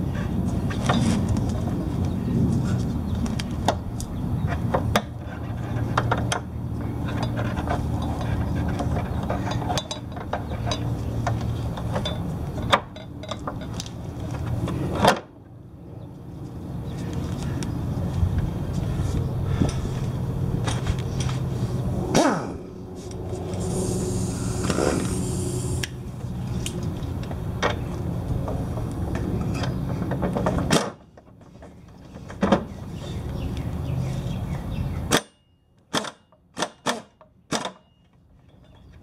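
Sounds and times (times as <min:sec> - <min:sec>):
steady low hum: 0:00.0 - 0:30.1.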